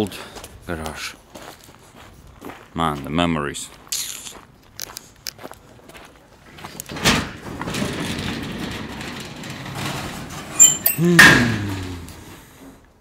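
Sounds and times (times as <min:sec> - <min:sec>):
metallic rumble of garage door: 0:06.5 - 0:12.8
garage door bang: 0:06.9 - 0:12.5
loud metal clanks: 0:07.2 - 0:12.2.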